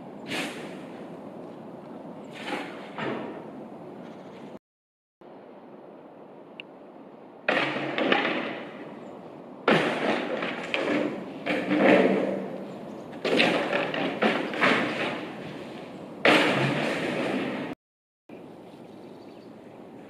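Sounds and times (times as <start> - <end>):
demolition debris crashing: 7.5 - 8.9, 9.6 - 15.6, 16.2 - 17.8.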